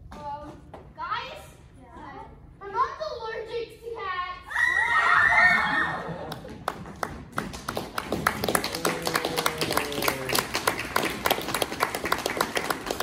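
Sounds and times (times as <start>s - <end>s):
audience applause: 5.9s - 13.0s.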